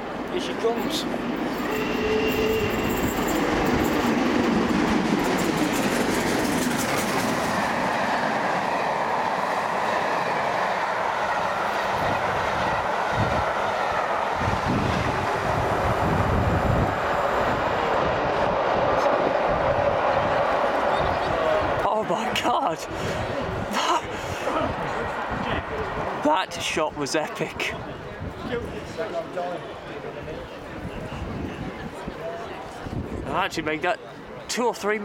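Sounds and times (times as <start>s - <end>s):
train wheels clickety-clack: 0.8s - 8.7s.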